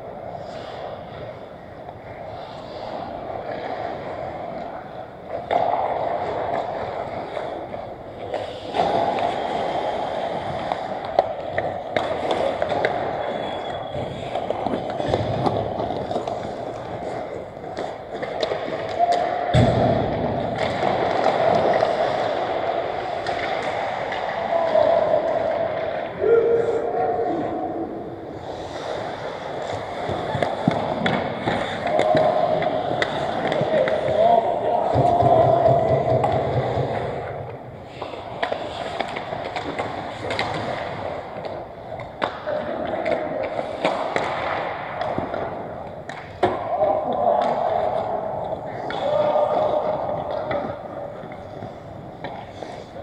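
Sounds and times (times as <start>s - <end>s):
skates scraping on ice: 0.0s - 53.0s
sticks and puck clacking: 0.0s - 53.0s.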